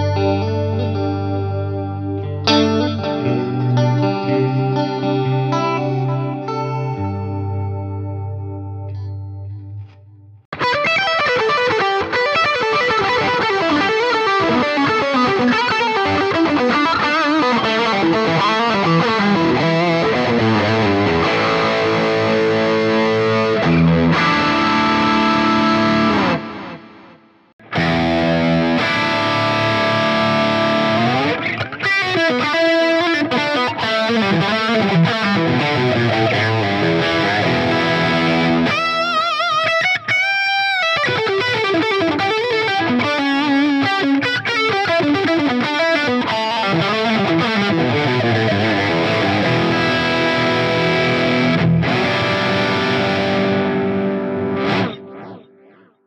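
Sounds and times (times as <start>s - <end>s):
distorted electric guitar: 0.0s - 56.0s.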